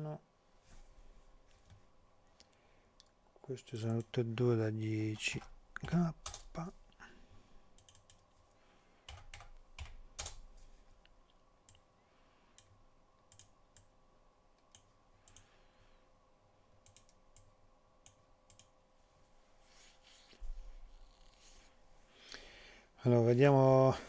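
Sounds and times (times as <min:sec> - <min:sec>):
faint steady hum: 0:00.0 - 0:24.0
keyboard and mouse clicks: 0:05.0 - 0:06.7, 0:07.8 - 0:08.3, 0:13.3 - 0:13.9, 0:16.8 - 0:18.7.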